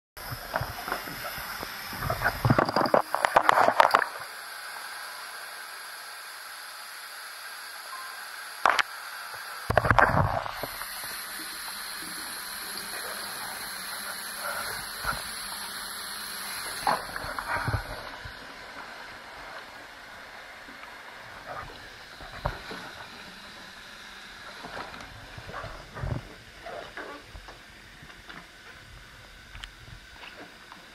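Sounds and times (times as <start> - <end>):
bath tap running: 10.0 - 20.8.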